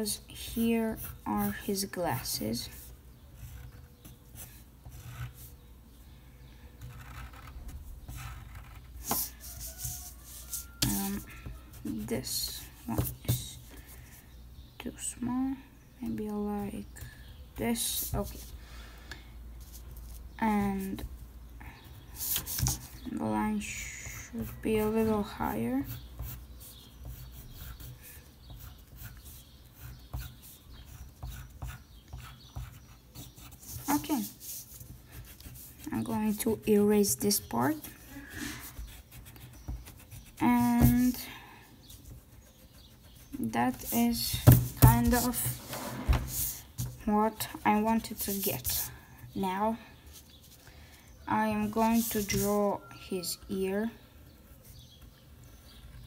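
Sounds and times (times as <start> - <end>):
pencil scratching on paper: 6.8 - 13.4, 24.0 - 41.2, 41.9 - 47.1, 47.7 - 48.9, 51.5 - 52.8.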